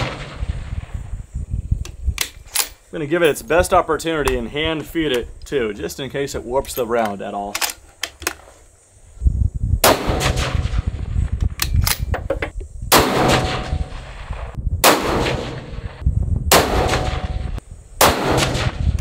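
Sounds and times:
rifle shots: 0.0 - 1.0, 9.8 - 11.0, 12.9 - 19.0
faint rifle bolt clicks: 6.7 - 8.5, 11.4 - 12.1.

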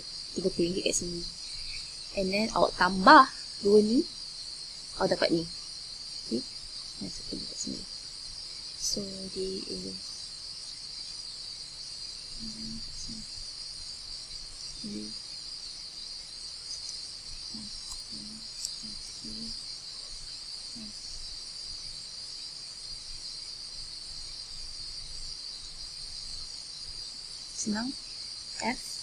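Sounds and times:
high-pitched hissing drone: 0.0 - 4.2, 12.1 - 13.6, 14.2 - 15.2, 16.6 - 21.3.

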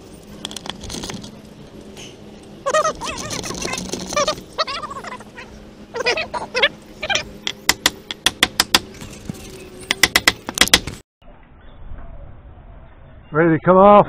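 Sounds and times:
short squeaks: 2.6 - 7.3.

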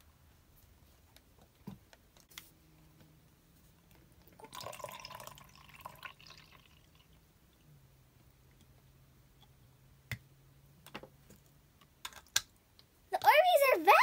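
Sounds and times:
water trickling into plastic jug: 4.4 - 7.2
water dripping: 4.4 - 7.7.

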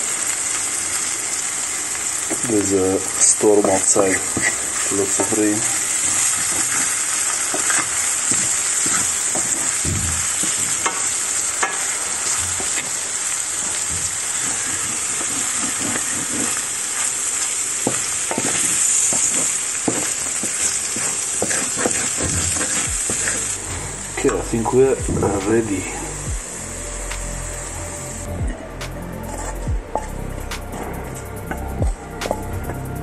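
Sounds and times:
sausages and eggs sizzling in pan: 0.0 - 33.0
wooden spatula scraping pan: 3.4 - 13.0, 13.6 - 17.1, 17.8 - 24.4, 29.2 - 30.9.

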